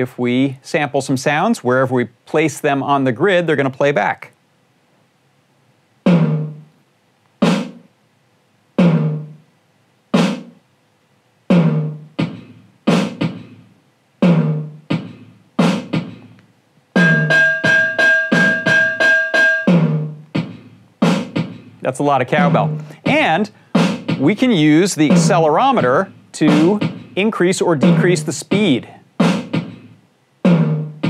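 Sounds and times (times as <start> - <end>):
drum hits through speaker: 6.0 - 6.7, 7.4 - 7.9, 8.8 - 9.4, 10.2 - 10.6, 11.5 - 16.4, 17.0 - 31.0
cowbell strikes: 17.0 - 19.8.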